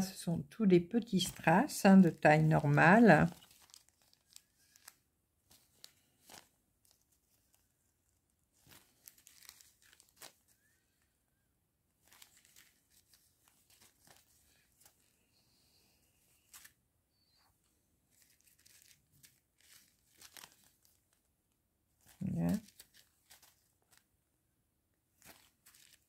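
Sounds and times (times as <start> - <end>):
plastic bags crinkling: 1.1 - 7.9, 8.5 - 10.8, 12.0 - 15.1, 18.1 - 21.2, 22.0 - 24.0, 25.2 - 26.0.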